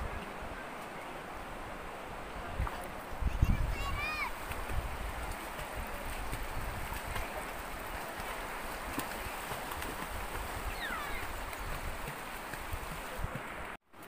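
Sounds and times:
rocky river rushing: 0.0s - 13.8s
wind buffeting microphone: 2.1s - 13.8s.

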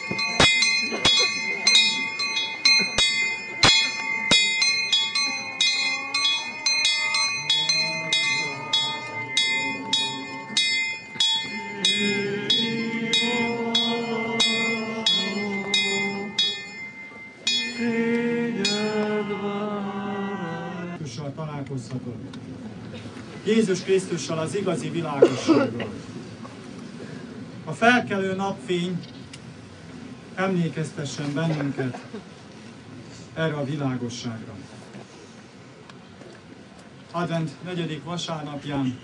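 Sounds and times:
small bells ringing rapidly: 0.0s - 19.3s
lingering bell hum: 0.0s - 21.0s
singing in slow held notes: 3.3s - 21.0s.

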